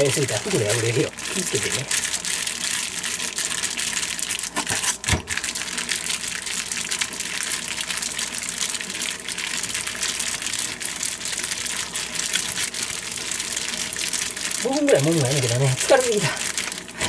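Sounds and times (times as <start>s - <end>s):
plastic bag rustling and crinkling: 0.0s - 5.8s.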